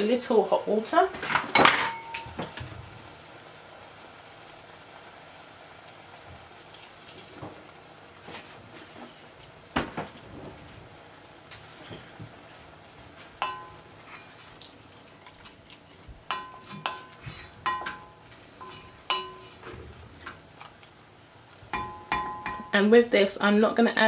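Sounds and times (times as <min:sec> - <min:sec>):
spoon knocking against pot: 0:13.4 - 0:13.8, 0:16.3 - 0:19.6, 0:21.7 - 0:22.8.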